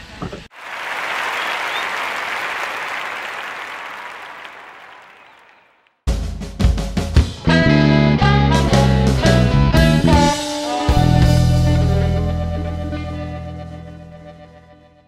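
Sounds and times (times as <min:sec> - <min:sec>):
crowd applause: 0:00.5 - 0:05.9
guitar music: 0:07.3 - 0:15.0.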